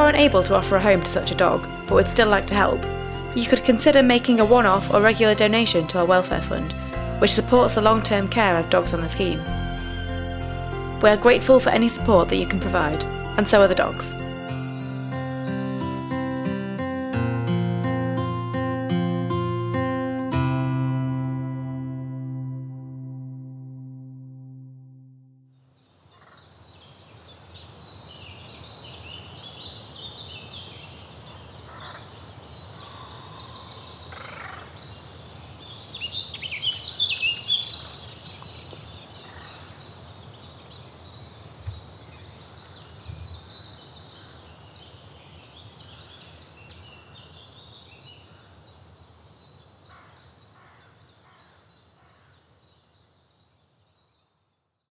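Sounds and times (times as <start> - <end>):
birds chirping: 26.3 - 53.4.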